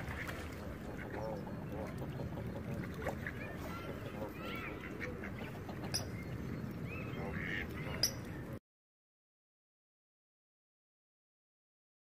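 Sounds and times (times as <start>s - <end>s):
ducks quacking: 0.0s - 6.1s, 7.0s - 8.3s
geese honking: 7.1s - 8.2s.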